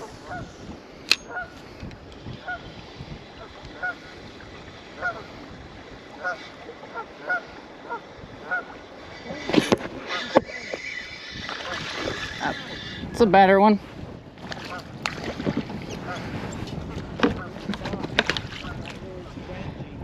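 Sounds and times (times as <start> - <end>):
geese honking: 0.0 - 0.5, 1.2 - 1.6, 3.4 - 4.1, 4.9 - 5.4, 6.1 - 13.0, 15.9 - 16.4.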